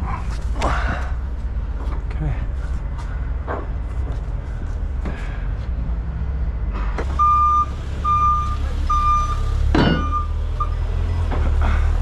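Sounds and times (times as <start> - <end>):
idling truck engine rumble: 0.0 - 12.0
vehicle backup alarm beeping: 7.0 - 11.3.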